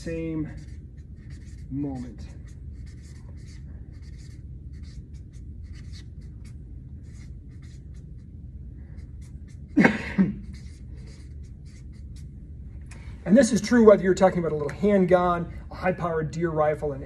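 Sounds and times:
marker scratching on paper: 0.0 - 12.4.

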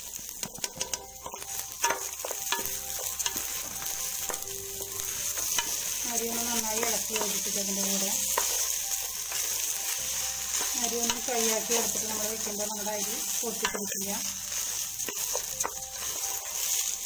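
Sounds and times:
rice sizzling in a pot: 0.0 - 17.0
spatula clicking against pot: 0.4 - 2.0.

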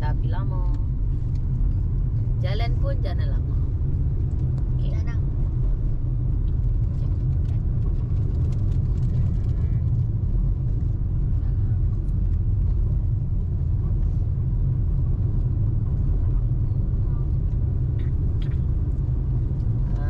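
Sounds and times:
car road and engine rumble: 0.0 - 20.0.

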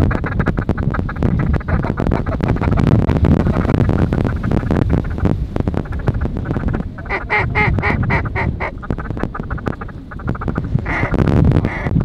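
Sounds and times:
low rushing noise: 0.1 - 12.0
duck quacking: 6.6 - 12.0.

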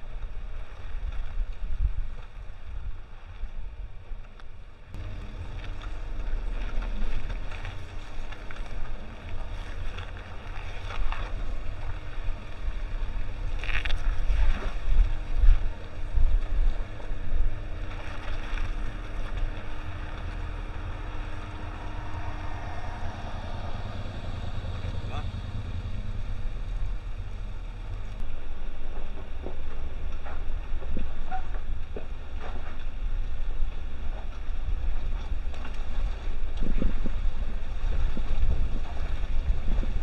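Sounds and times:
low vehicle engine rumble: 0.0 - 40.0
wind buffeting microphone: 0.0 - 40.0
tyres crunching over gravel: 5.0 - 30.8.

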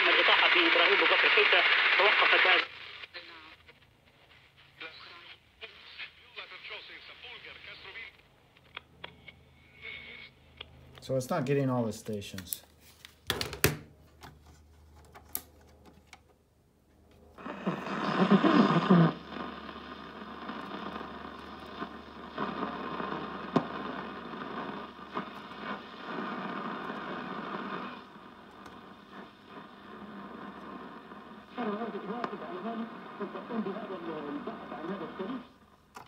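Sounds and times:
radio broadcast from loudspeaker: 0.0 - 8.3, 9.6 - 10.4, 17.4 - 35.7
radio hiss: 0.0 - 11.8, 17.4 - 35.9.

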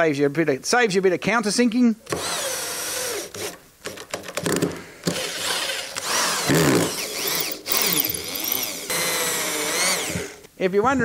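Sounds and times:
electric drill driving screws: 2.1 - 10.5.

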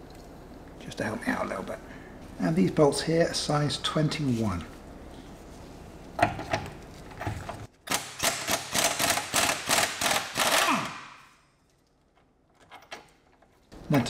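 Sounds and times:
impact wrench hammering: 7.9 - 11.3.

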